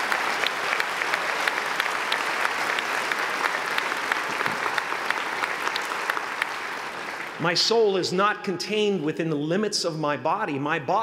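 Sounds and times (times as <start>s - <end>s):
large audience applauding: 0.0s - 8.0s.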